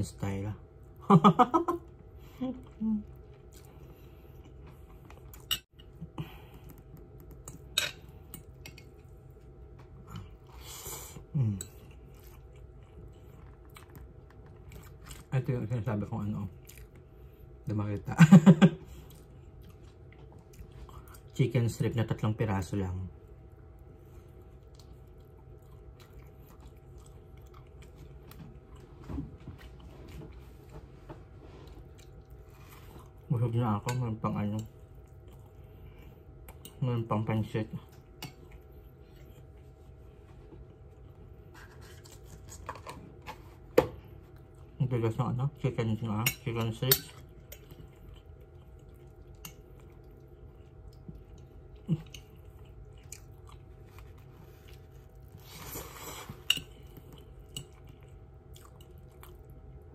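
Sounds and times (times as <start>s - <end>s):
person chewing: 2.6s - 15.3s, 16.5s - 17.2s, 23.8s - 30.8s, 31.6s - 33.3s, 34.6s - 36.8s, 47.1s - 59.9s.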